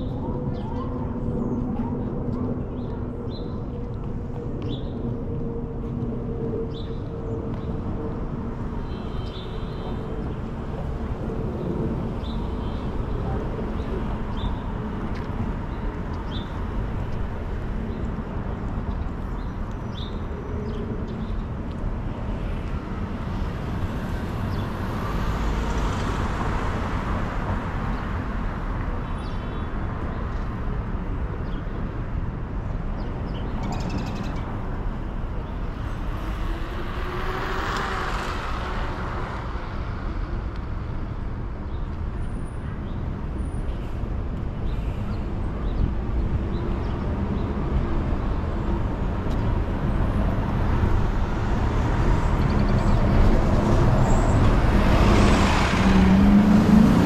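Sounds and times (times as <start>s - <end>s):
road noise hum: 0.0s - 57.0s
cars passing: 29.9s - 42.4s, 43.0s - 57.0s.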